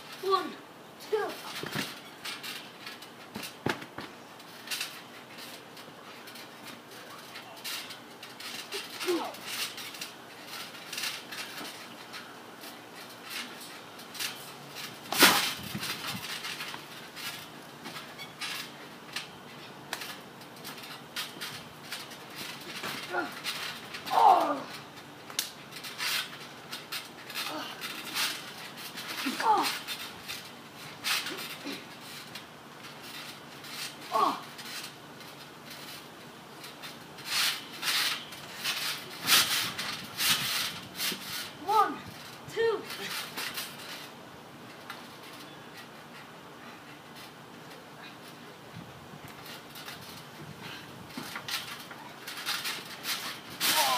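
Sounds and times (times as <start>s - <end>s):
body thudding on trampoline: 1.2s - 5.6s, 13.0s - 18.7s, 19.9s - 24.8s.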